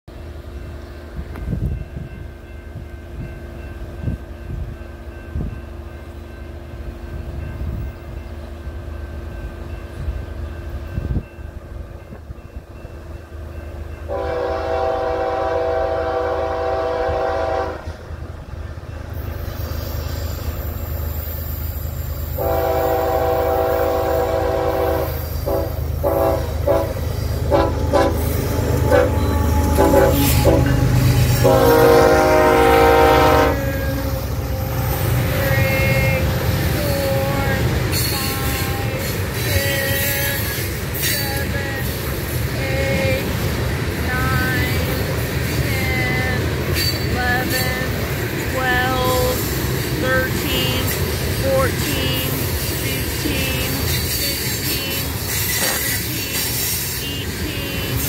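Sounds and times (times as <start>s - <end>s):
rail noise: 0.0s - 58.0s
locomotive rumble: 0.1s - 58.0s
locomotive horn blasts: 14.1s - 18.0s, 22.4s - 39.1s, 52.3s - 58.0s.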